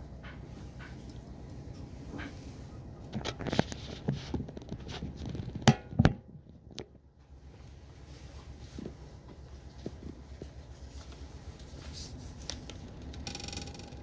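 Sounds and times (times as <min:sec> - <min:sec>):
low train rumble: 0:00.0 - 0:03.2.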